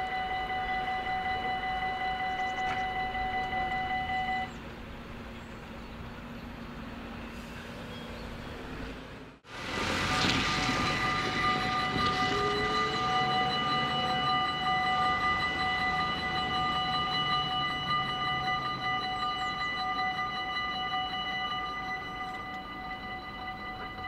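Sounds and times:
level-crossing bells ringing: 0:00.0 - 0:04.5, 0:09.8 - 0:24.0.

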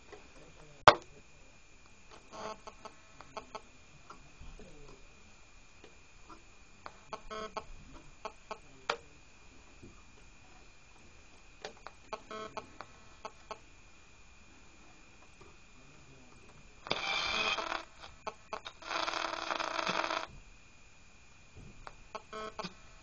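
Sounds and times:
faint radio hiss: 0:00.0 - 0:23.0
high radio whistle: 0:16.8 - 0:20.4
chirping squawks: 0:16.9 - 0:20.3
radio dial clicks: 0:16.9 - 0:20.3, 0:21.8 - 0:22.8.

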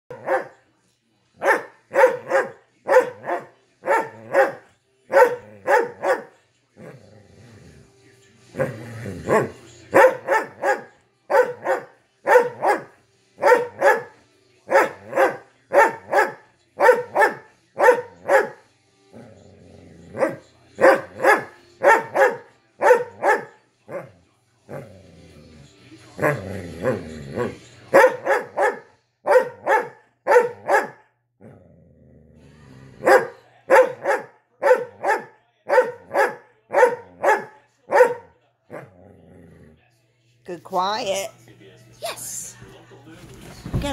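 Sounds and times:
dog barking: 0:00.1 - 0:00.6, 0:01.4 - 0:06.4, 0:09.3 - 0:18.6, 0:20.1 - 0:24.1, 0:26.2 - 0:31.1, 0:33.0 - 0:38.9
faint tv commercial with music: 0:00.1 - 0:43.9.

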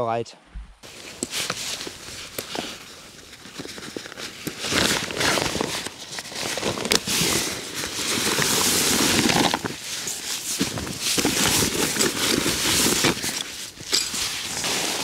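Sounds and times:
backpack fabric crinkling: 0:00.8 - 0:15.0.

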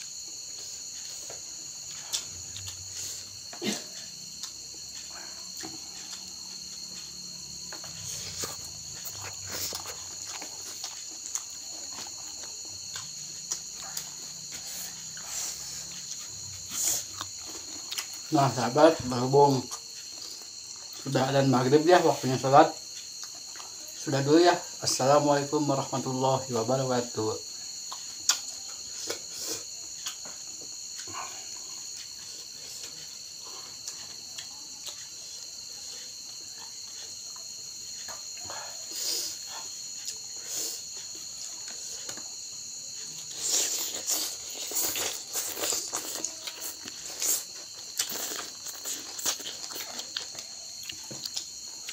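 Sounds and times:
crickets chirring: 0:00.0 - 0:51.9
close chewing and mouth sounds: 0:00.1 - 0:25.2, 0:27.0 - 0:51.9
crunching raw vegetables: 0:05.5 - 0:21.2, 0:41.6 - 0:51.9.

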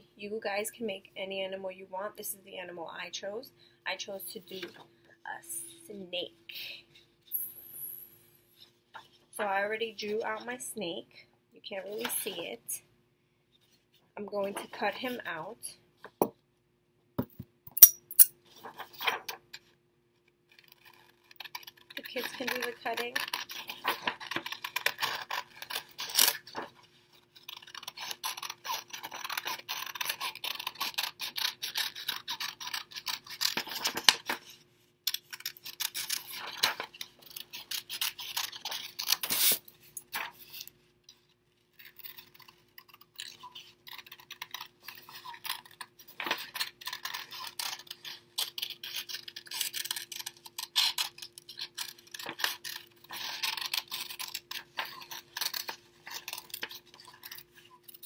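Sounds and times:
paper rustling and crinkling: 0:18.5 - 0:19.4, 0:20.5 - 0:31.0
scissors snipping paper: 0:20.5 - 0:34.5, 0:35.1 - 0:40.7, 0:41.7 - 0:58.0.

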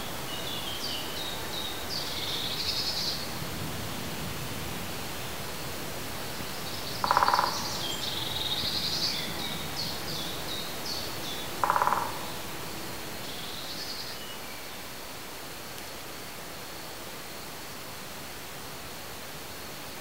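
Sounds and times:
songbirds chirping: 0:00.0 - 0:19.9
steady hiss: 0:00.0 - 0:20.0
low bird call: 0:06.6 - 0:12.6.

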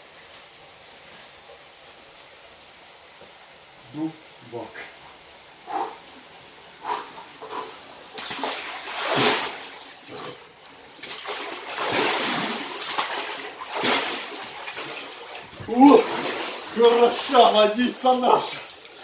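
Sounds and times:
water splashing and sloshing: 0:04.8 - 0:19.0.

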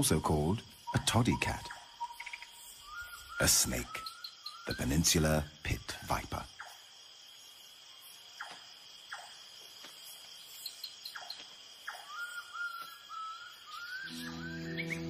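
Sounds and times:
bird warbling song: 0:00.0 - 0:15.0
high-pitched insect chorus: 0:00.0 - 0:15.0
soft music: 0:14.0 - 0:15.0.

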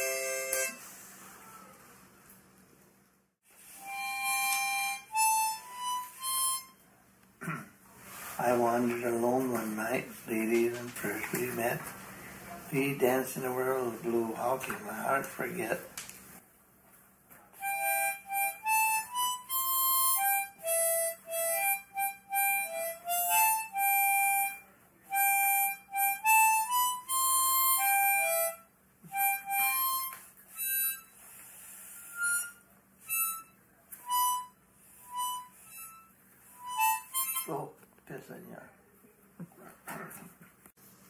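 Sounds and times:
harmonica melody: 0:00.0 - 0:00.9, 0:03.5 - 0:06.9, 0:17.6 - 0:37.7.

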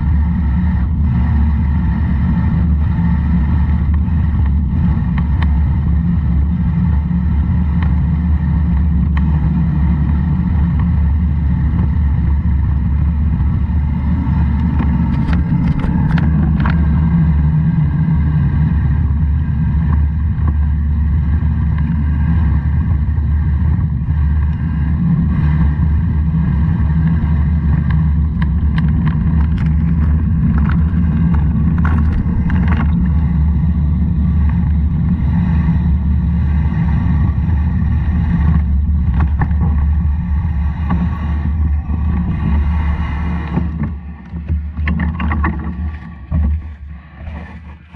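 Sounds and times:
vehicle engine rumbling: 0:00.0 - 0:47.9.

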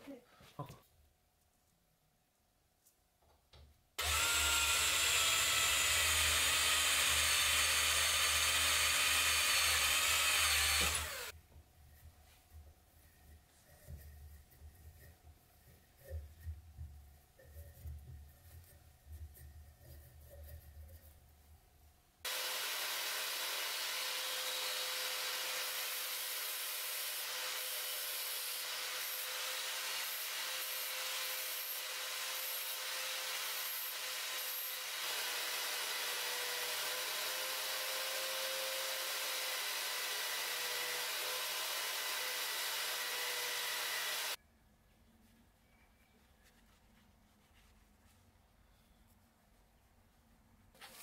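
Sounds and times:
power tool motor whine: 0:04.0 - 0:11.3, 0:22.3 - 0:27.9, 0:28.6 - 0:44.4.

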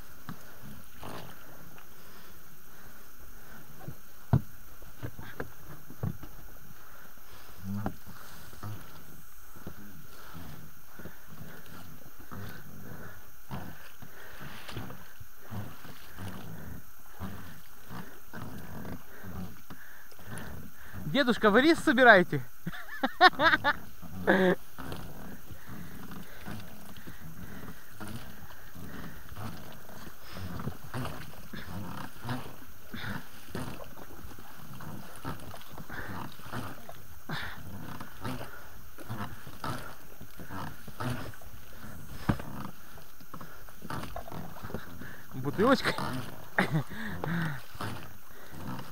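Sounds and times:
water and boat noise: 0:00.0 - 0:48.9
person breathing heavily: 0:09.8 - 0:18.4, 0:19.0 - 0:21.1, 0:25.3 - 0:30.6, 0:35.8 - 0:37.7, 0:46.6 - 0:48.9.

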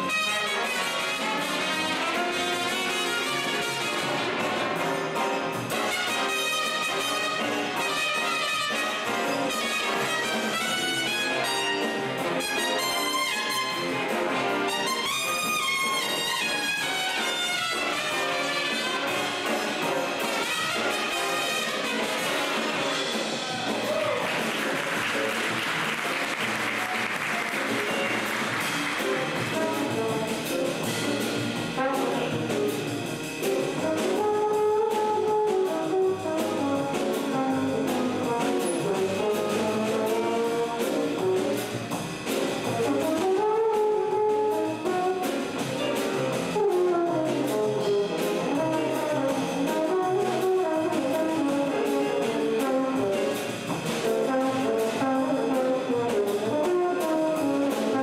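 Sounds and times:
jazz trombone solo: 0:00.0 - 0:24.1, 0:24.7 - 0:58.0
big band rhythm section: 0:00.0 - 0:58.0
audience applause: 0:23.3 - 0:30.0.

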